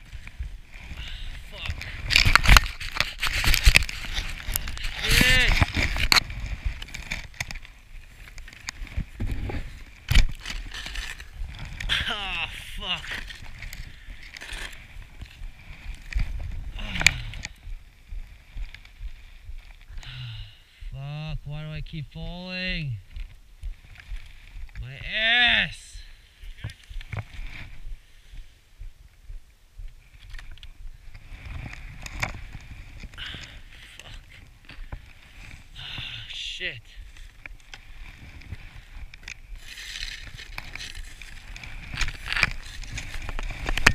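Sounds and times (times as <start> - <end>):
steady low rumble: 7.7 - 25.1, 25.9 - 36.0
skis scraping in snow: 36.8 - 43.9.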